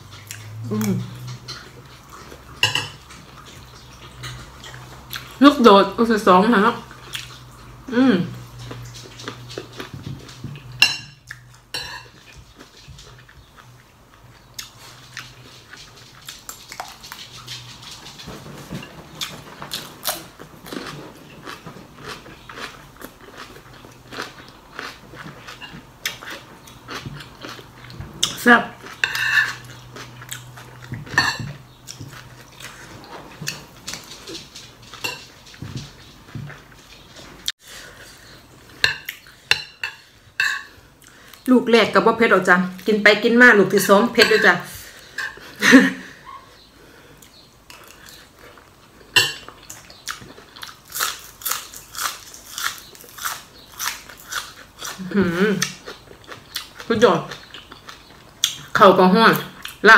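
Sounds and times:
chewing chili pepper: 0.0s - 5.4s, 6.8s - 10.7s, 11.3s - 18.3s, 19.1s - 37.2s, 47.2s - 59.9s.

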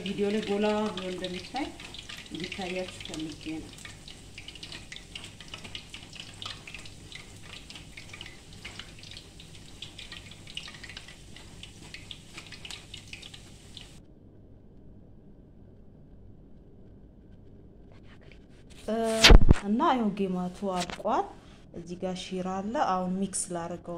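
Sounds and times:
dough deep-frying in oil: 0.0s - 14.0s
faint low hum: 0.0s - 23.9s.

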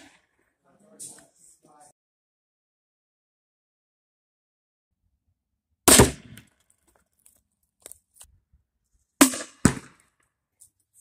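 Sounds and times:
grenade launcher firing: 5.9s - 6.4s, 9.2s - 10.0s.

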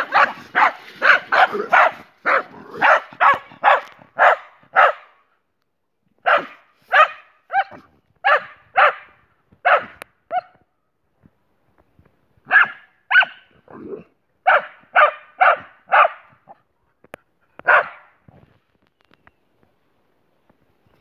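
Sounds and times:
dog yelping: 0.0s - 5.0s
dogs barking: 0.0s - 5.1s, 6.2s - 10.5s, 12.5s - 13.4s, 14.4s - 16.3s, 17.6s - 18.2s.

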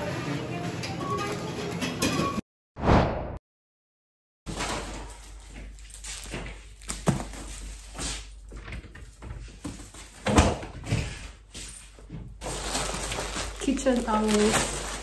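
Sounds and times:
cupboard door opening and closing: 10.2s - 11.2s
packaging rustling: 12.4s - 15.0s.

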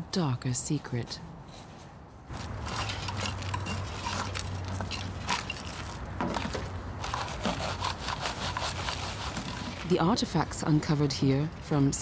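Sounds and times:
gravelly soil being scraped: 2.3s - 10.2s.

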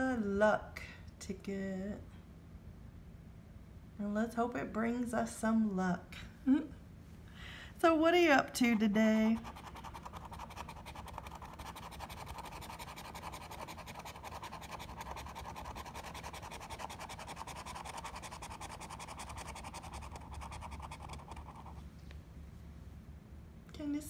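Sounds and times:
coin scratching lottery ticket: 9.2s - 21.8s.

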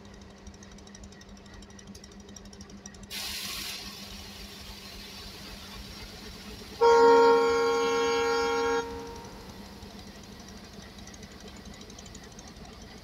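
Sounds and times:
locomotive horn blast: 6.8s - 9.9s.

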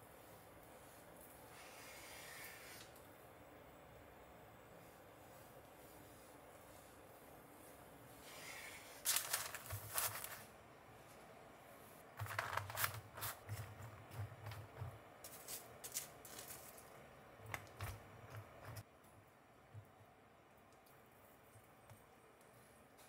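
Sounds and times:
bean sprouts rustling: 8.4s - 10.5s, 15.2s - 17.0s.

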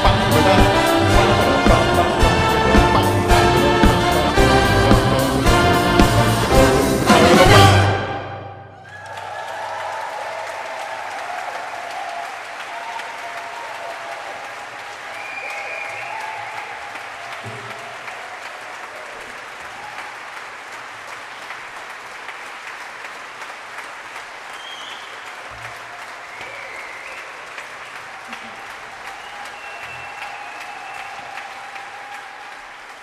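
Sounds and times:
audience applauding: 0.0s - 8.1s, 8.7s - 33.0s.

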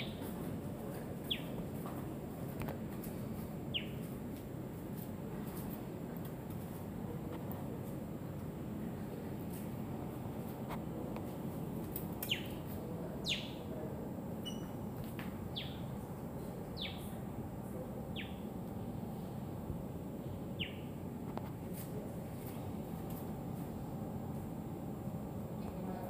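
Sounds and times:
steady low hum: 0.0s - 26.0s
osprey whistling calls: 12.2s - 12.6s, 13.2s - 13.7s, 14.4s - 14.8s, 15.5s - 15.9s, 16.8s - 17.1s, 18.1s - 18.4s, 20.6s - 20.9s.

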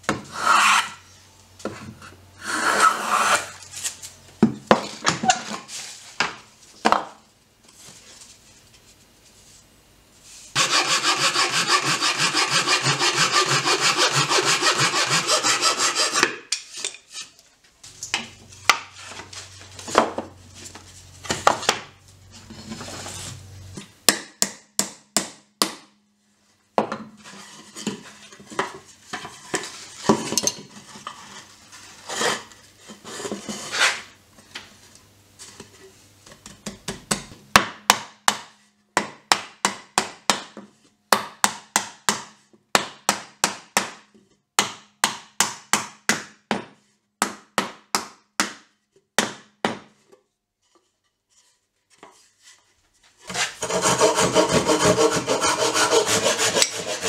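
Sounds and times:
scraping wood: 10.6s - 17.4s, 53.2s - 57.0s.

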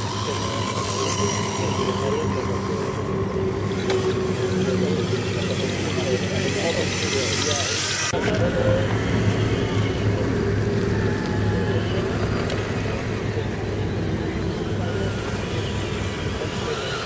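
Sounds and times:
electric motors whirring: 0.0s - 17.0s
steady low hum: 8.1s - 17.0s.

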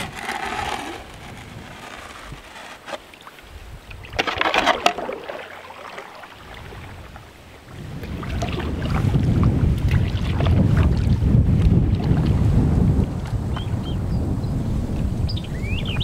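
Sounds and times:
wind rumble on microphone: 0.0s - 2.8s, 6.4s - 16.0s
canoe paddles splashing in water: 4.0s - 12.5s.

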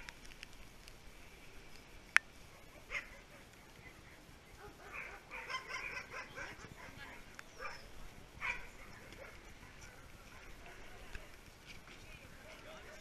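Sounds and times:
dogs barking: 2.5s - 3.6s, 4.6s - 10.8s.

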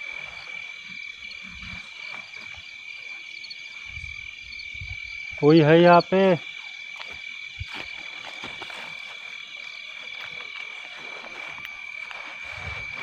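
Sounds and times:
frogs and insects chorus: 0.0s - 13.0s
steps through vegetation: 6.8s - 13.0s.

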